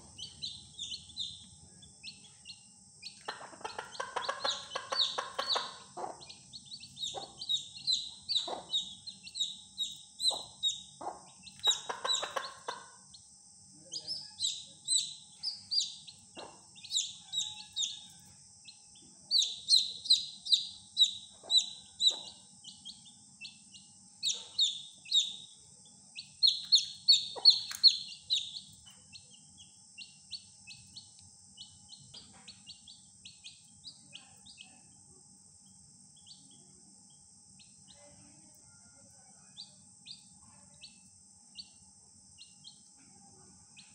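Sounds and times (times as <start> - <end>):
chicks peeping: 0.0 - 35.0, 35.7 - 38.7, 39.5 - 43.0
hen clucking: 2.4 - 13.0, 19.3 - 22.4, 26.4 - 28.6.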